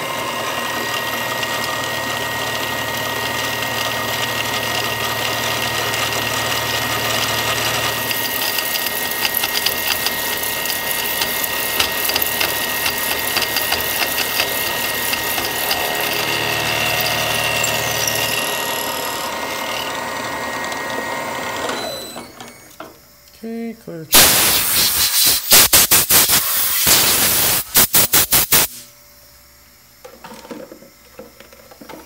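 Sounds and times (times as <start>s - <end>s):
milling machine cutting metal: 0.0s - 22.7s
rattle of ticks: 8.2s - 15.8s.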